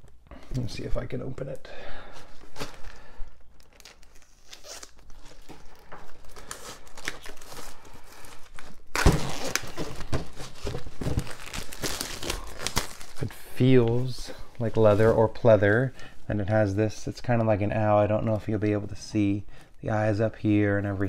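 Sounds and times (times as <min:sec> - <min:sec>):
plastic shrink-wrap tearing: 0:03.6 - 0:13.3.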